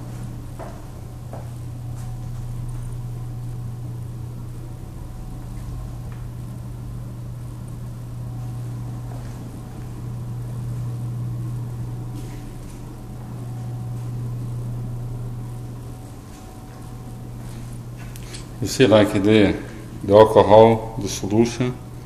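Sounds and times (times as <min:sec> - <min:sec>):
machine humming: 0:00.0 - 0:22.0.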